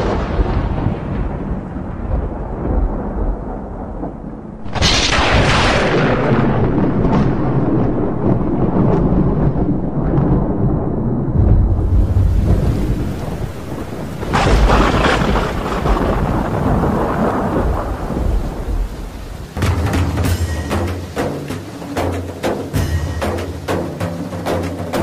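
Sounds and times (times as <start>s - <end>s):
rolling thunder: 0.0s - 25.0s
thunder clap: 0.0s - 25.0s
rain hissing: 4.6s - 10.6s, 11.4s - 25.0s
drums: 11.4s - 25.0s.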